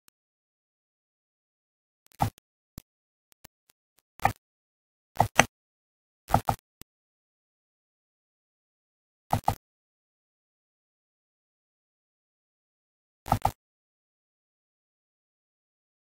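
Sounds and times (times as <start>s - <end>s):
computer mouse clicking: 4.2s - 4.4s, 5.2s - 5.5s, 6.3s - 6.6s, 9.3s - 9.6s, 13.3s - 13.6s.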